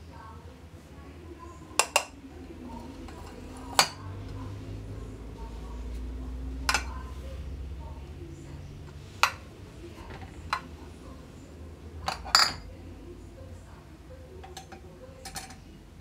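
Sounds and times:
low steady hum: 0.0 - 16.0
glassware clinking: 12.0 - 12.6, 14.5 - 15.6.

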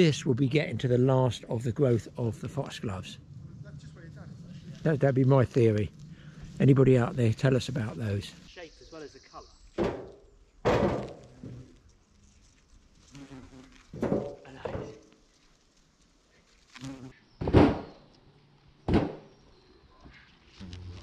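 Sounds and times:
bumblebee buzzing: 13.0 - 15.0, 16.7 - 18.0, 20.5 - 21.0.

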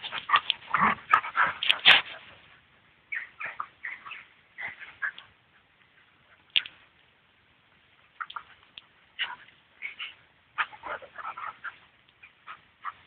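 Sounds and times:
dogs yelping and growling: 0.0 - 2.2, 9.2 - 13.0.

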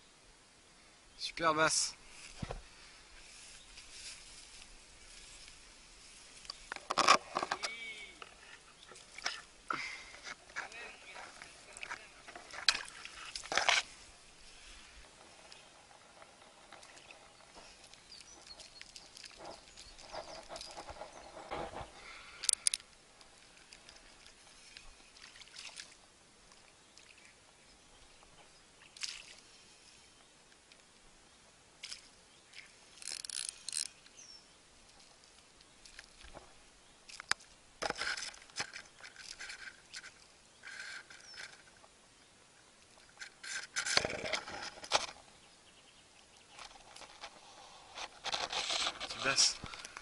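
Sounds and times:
rustles: 0.8 - 50.0
splashy handling noises: 23.6 - 26.0.

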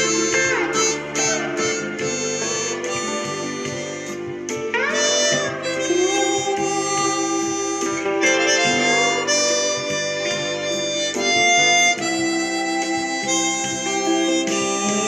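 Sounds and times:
guitar accompaniment: 0.0 - 15.0
harmonica playing slow melody: 0.0 - 15.0.

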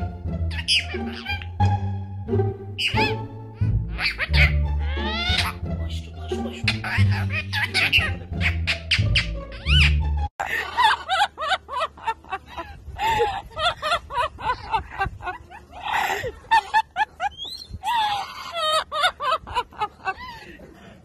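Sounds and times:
parrot vocalizing speech-like syllables: 3.9 - 9.7.

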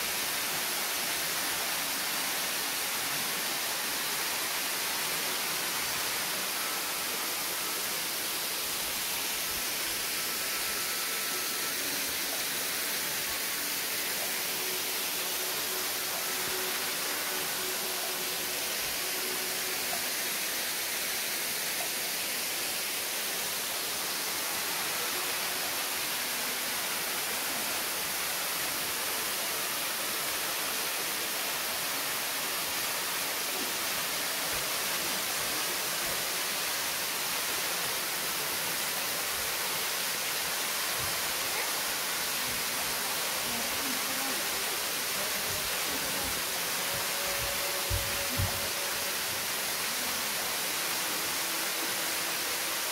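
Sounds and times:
waterfall rushing: 0.0 - 52.9.

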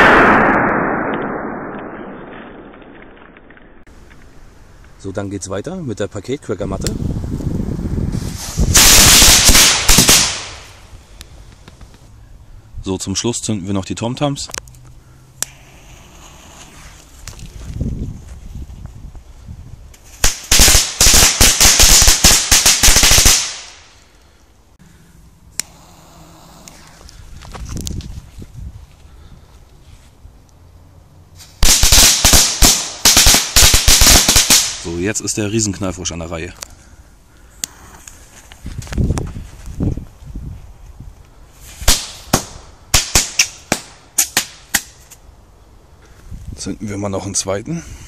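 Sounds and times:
firecrackers banging: 0.0 - 3.9, 8.2 - 10.8, 20.2 - 23.9, 31.6 - 34.9.

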